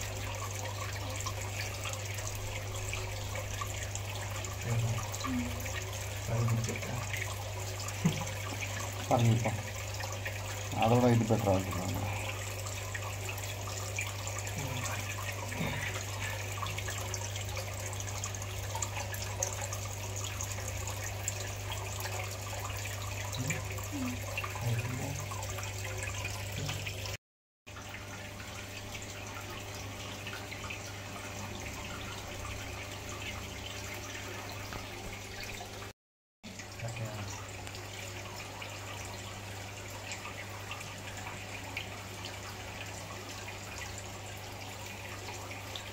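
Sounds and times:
low constant hum: 0:00.0 - 0:26.8
running trickling water: 0:00.0 - 0:45.9.

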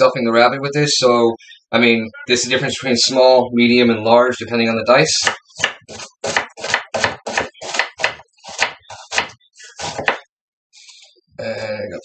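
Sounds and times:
knife chopping on wooden board: 0:05.2 - 0:10.3.

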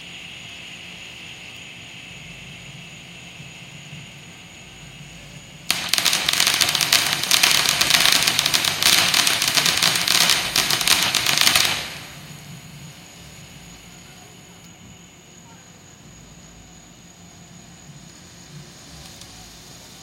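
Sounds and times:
firework hissing: 0:04.2 - 0:14.5, 0:18.0 - 0:20.0
firework crackling: 0:05.6 - 0:13.8.

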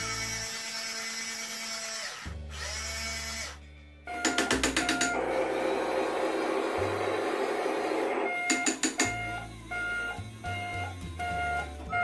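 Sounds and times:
toy gear motor whirring: 0:00.0 - 0:03.6.

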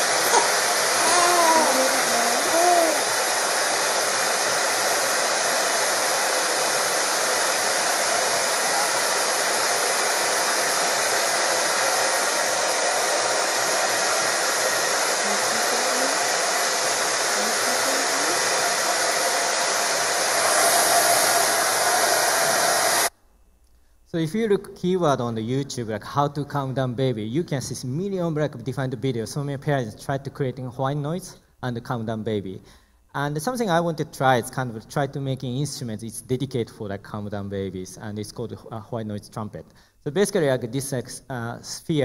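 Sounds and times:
white noise hiss: 0:00.0 - 0:26.0
baby crying: 0:00.1 - 0:03.2, 0:15.2 - 0:16.3, 0:17.3 - 0:18.5
baby whimpering: 0:00.2 - 0:03.2, 0:15.2 - 0:16.3, 0:17.3 - 0:18.5.

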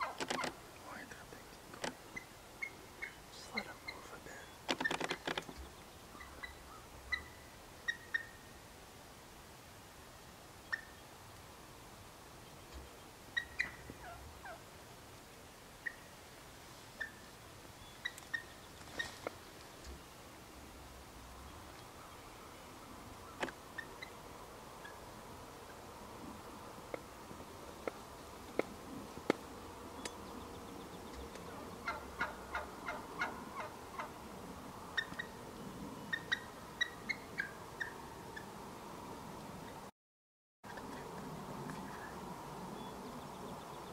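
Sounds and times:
wild turkeys calling: 0:01.8 - 0:08.6, 0:10.6 - 0:11.1, 0:12.7 - 0:14.7, 0:15.8 - 0:16.2, 0:17.0 - 0:20.0, 0:23.2 - 0:34.3, 0:34.9 - 0:35.4, 0:36.0 - 0:38.5
turkey yelps: 0:06.2 - 0:08.4, 0:13.4 - 0:14.6, 0:31.5 - 0:34.2, 0:36.1 - 0:38.0.

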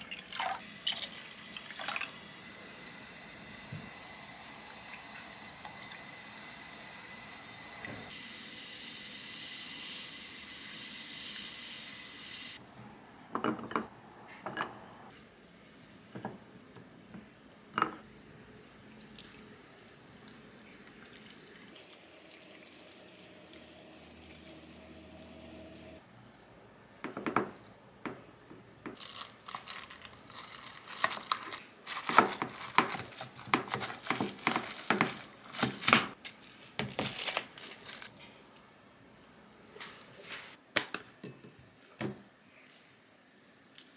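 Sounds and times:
liquid poured into glass containers: 0:00.0 - 0:02.2, 0:18.9 - 0:26.0
plastic wrap crinkling: 0:29.0 - 0:38.5.

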